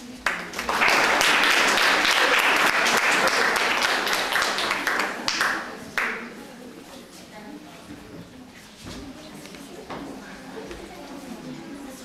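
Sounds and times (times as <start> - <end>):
audience applauding: 0.2 - 6.2.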